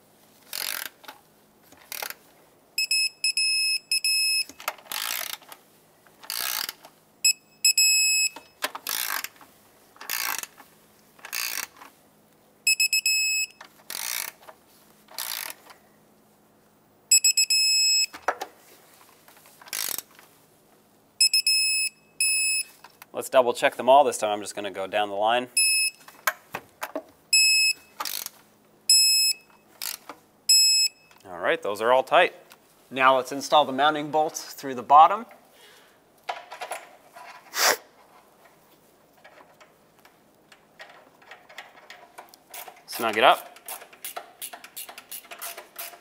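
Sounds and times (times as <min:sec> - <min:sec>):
torque wrench ratcheting: 0:00.5 - 0:01.0, 0:04.9 - 0:05.4, 0:06.3 - 0:06.8, 0:08.8 - 0:09.4, 0:10.0 - 0:10.5, 0:11.2 - 0:11.8, 0:13.9 - 0:14.4, 0:15.1 - 0:15.6, 0:19.7 - 0:20.1, 0:29.8 - 0:30.0, 0:42.2 - 0:46.0.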